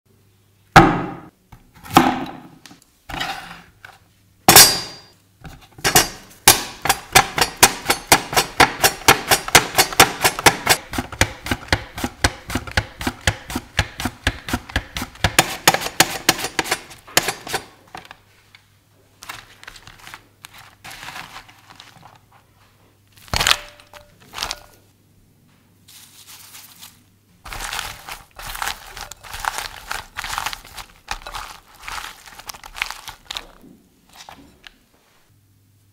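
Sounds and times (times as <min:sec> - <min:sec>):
wet slices rustling in bowl: 0:19.2 - 0:22.5, 0:25.9 - 0:34.8.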